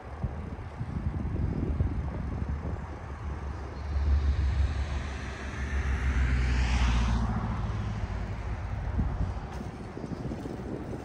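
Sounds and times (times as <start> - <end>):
wind rumbling on microphone: 0.0 - 11.0
vehicle passing by: 2.4 - 10.3.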